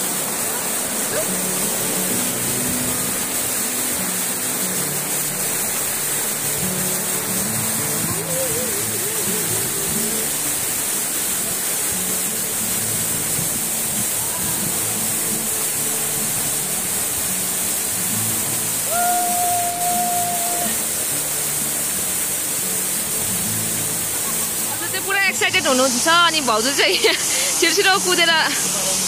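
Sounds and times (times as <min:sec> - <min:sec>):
waterfall pouring onto rocks: 0:00.0 - 0:29.0.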